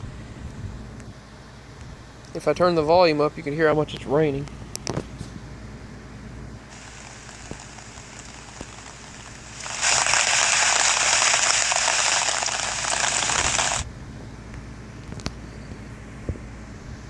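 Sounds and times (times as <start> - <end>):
heavy rain pouring: 6.7 - 13.8.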